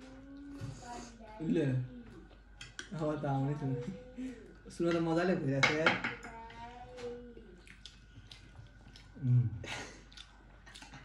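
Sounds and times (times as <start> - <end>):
chewing: 7.0 - 11.0.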